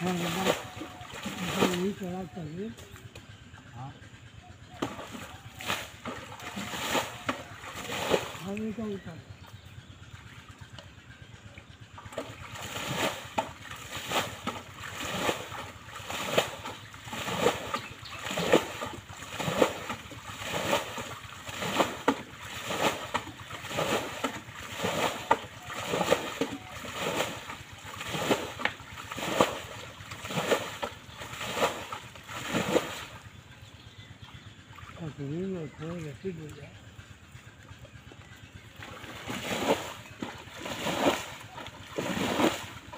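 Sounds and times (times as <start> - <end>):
water scooped and splashed: 4.8 - 8.4, 12.1 - 33.2, 38.8 - 42.9.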